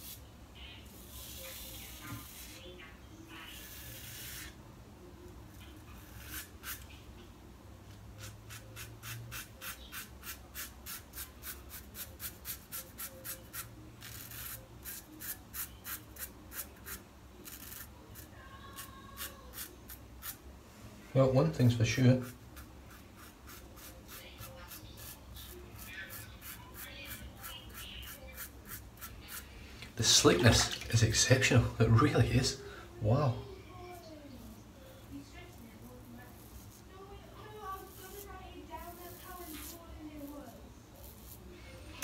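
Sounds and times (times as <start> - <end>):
razor scraping stubble: 0.9 - 2.7, 3.4 - 4.6, 5.6 - 7.0, 8.2 - 20.4, 21.7 - 31.1, 35.4 - 42.0.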